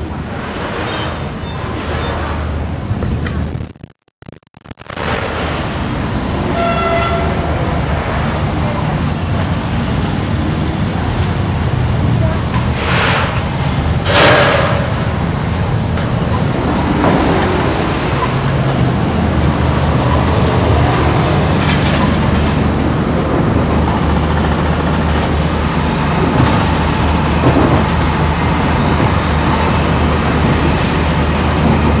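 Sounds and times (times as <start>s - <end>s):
road traffic rumble: 0.0s - 3.7s, 4.8s - 32.0s.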